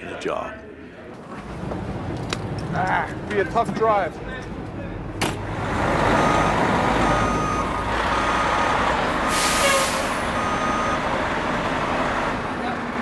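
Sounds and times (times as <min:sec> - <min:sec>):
truck engine running: 0:05.4 - 0:13.0
reversing beeper: 0:06.1 - 0:11.1.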